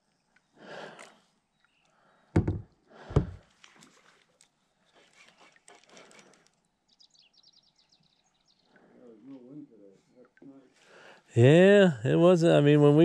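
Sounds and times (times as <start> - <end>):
gear knocking on plastic kayak: 2.4 - 3.4.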